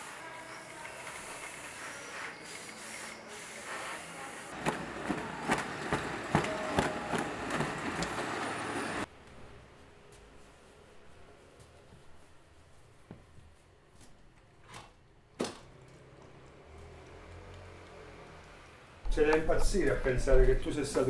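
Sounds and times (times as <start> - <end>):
street rumble: 4.5 - 9.1.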